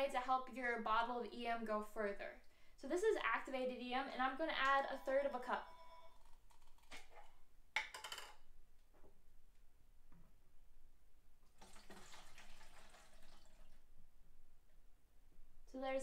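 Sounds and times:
liquid pouring into plastic jug: 11.5s - 13.8s.

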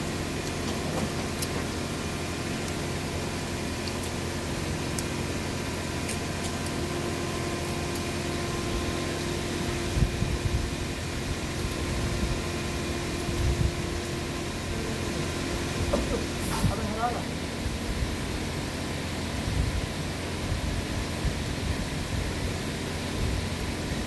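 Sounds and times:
electric fan humming: 0.0s - 24.0s.

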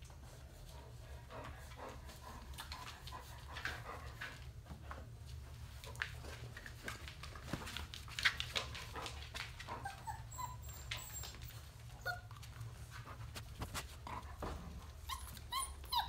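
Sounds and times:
paws clicking on tile floor: 0.0s - 16.0s
puppies whimpering: 9.8s - 12.3s, 15.0s - 16.0s.

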